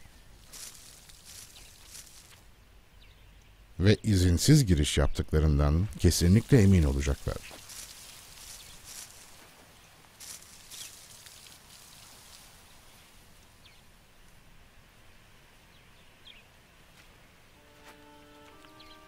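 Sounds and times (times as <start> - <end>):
rustles in dry grass: 0.0 - 2.6, 5.9 - 14.5.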